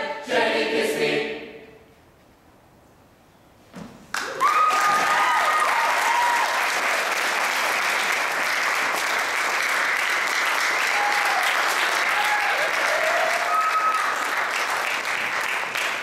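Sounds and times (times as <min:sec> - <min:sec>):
choir singing: 0:00.0 - 0:01.9
audience applause: 0:04.1 - 0:16.0
voices whooping: 0:04.2 - 0:06.7, 0:10.8 - 0:14.2.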